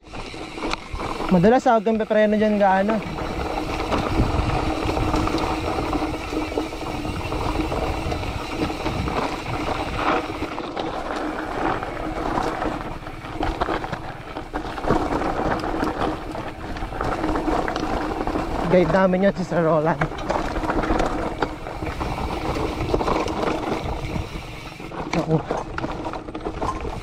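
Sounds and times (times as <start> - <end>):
bike knocking and rattling: 0.0 - 27.0
wind on microphone: 2.9 - 19.4.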